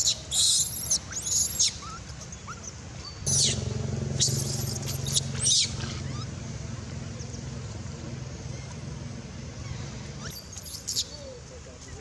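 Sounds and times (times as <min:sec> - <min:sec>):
baby monkey screaming: 0:00.0 - 0:02.7, 0:03.3 - 0:03.6, 0:04.2 - 0:06.3, 0:09.6 - 0:11.2.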